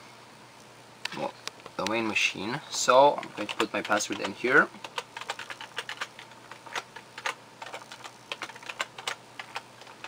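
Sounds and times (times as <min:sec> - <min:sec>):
keyboard keys clicking: 0:03.2 - 0:10.0.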